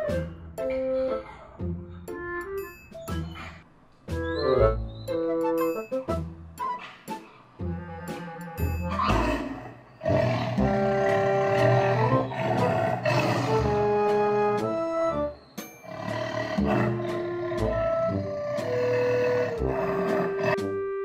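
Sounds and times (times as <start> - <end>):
tiger roaring: 7.9 - 14.5, 15.9 - 20.6.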